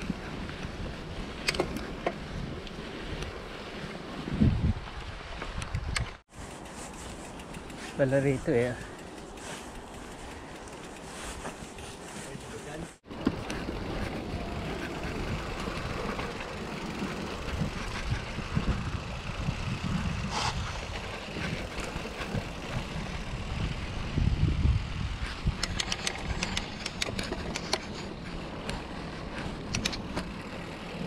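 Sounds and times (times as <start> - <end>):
bike jolt: 0.0 - 18.9
bike clicks and rattles: 0.0 - 31.0
bike rumbling on rough trail: 0.0 - 31.0.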